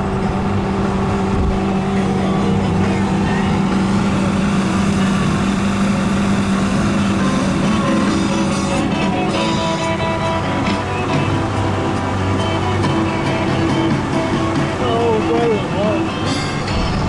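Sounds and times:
outboard motor running: 0:00.0 - 0:17.0.

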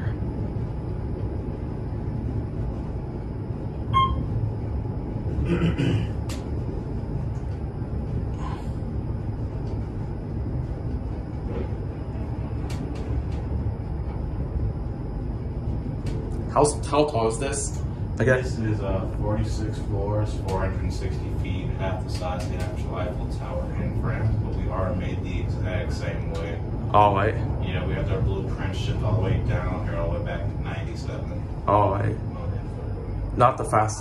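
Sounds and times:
elevator car rumble: 0:00.0 - 0:34.0
short electronic beep: 0:03.9 - 0:04.3.

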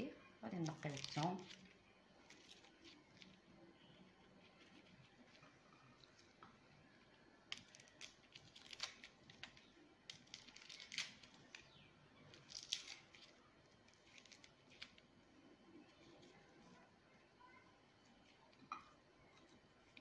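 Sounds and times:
knife peeling garlic skins: 0:00.5 - 0:03.4, 0:07.4 - 0:15.1.

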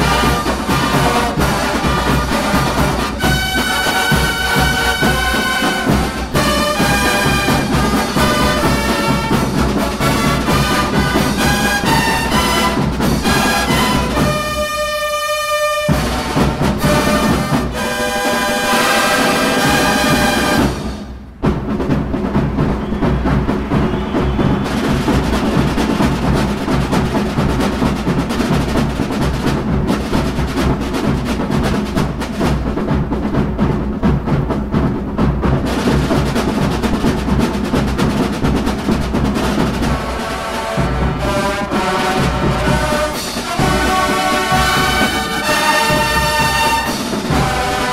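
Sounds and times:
bugles playing held chords: 0:00.0 - 0:21.0, 0:39.6 - 0:47.9
drum line playing: 0:00.0 - 0:47.9.

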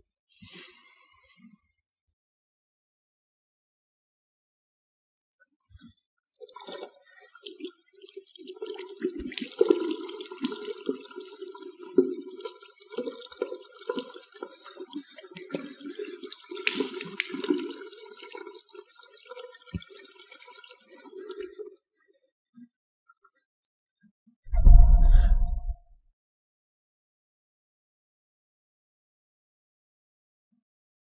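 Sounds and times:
tap water running into basin: 0:06.4 - 0:21.7
water splashing from hands: 0:16.6 - 0:17.8.

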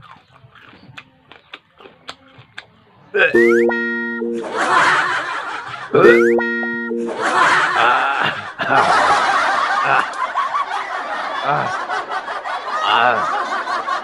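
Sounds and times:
laughter: 0:04.4 - 0:06.1, 0:07.0 - 0:14.0.

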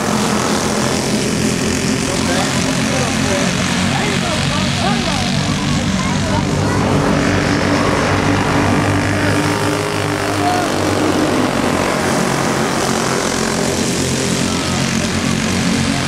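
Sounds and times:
kart engines buzzing at high revs: 0:00.0 - 0:16.0.

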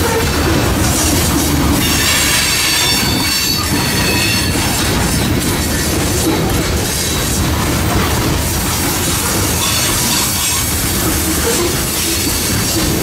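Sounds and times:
freight train wheels rumbling: 0:00.0 - 0:13.0
high wheel squeal: 0:01.1 - 0:04.9, 0:09.6 - 0:12.9.

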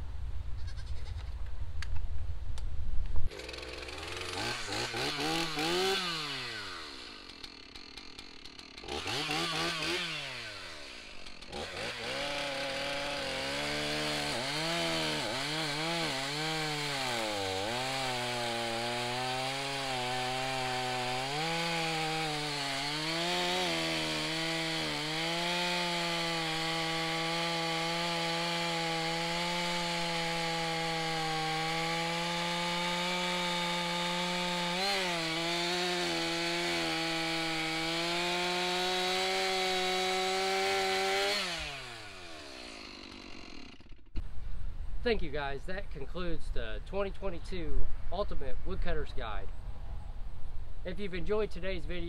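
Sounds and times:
chainsaw cutting log: 0:03.3 - 0:44.3.

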